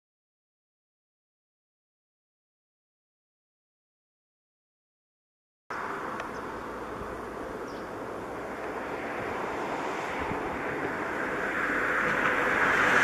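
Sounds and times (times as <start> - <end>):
distant engine rushing: 5.7 - 13.0.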